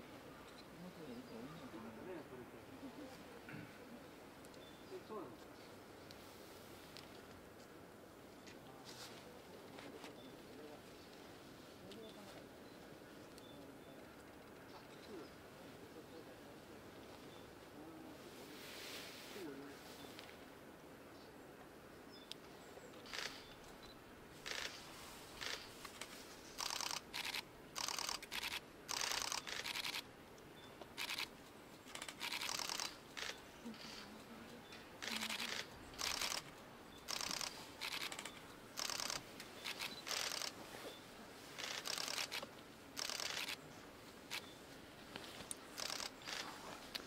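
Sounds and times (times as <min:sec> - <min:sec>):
camera shutter rapid clicks: 0:23.1 - 0:23.5, 0:24.4 - 0:24.8, 0:25.4 - 0:30.0, 0:31.0 - 0:31.3, 0:31.9 - 0:33.4, 0:35.0 - 0:36.5, 0:37.1 - 0:40.6, 0:41.6 - 0:43.6, 0:45.8 - 0:46.4.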